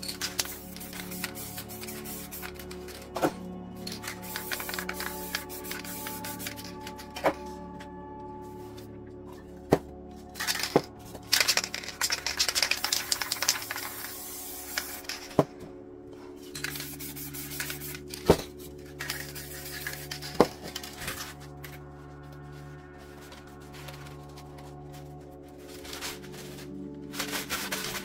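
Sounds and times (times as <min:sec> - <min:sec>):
spray paint can hissing: 0:00.0 - 0:03.0, 0:03.9 - 0:07.0, 0:10.4 - 0:15.4, 0:16.6 - 0:18.2, 0:19.0 - 0:21.3
background music: 0:00.0 - 0:28.0.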